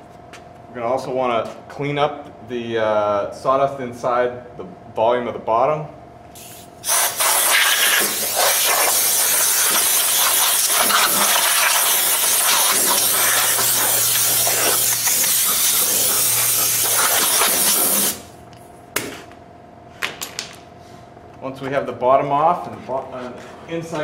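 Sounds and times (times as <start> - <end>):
air blow gun hissing: 6.4 - 18.3.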